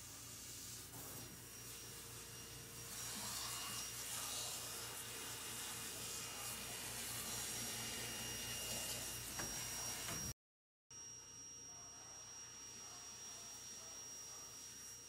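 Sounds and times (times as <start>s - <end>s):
shower sprayer hissing: 0.0s - 10.2s.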